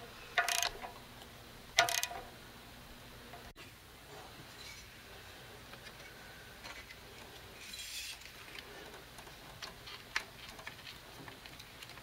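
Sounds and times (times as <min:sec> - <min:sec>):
scraping rustle of hose: 0:07.6 - 0:09.0.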